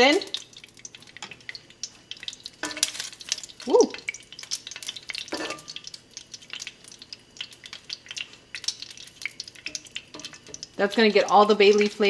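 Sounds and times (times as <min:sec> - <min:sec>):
leaves sizzling and crackling in oil: 0:00.0 - 0:12.0.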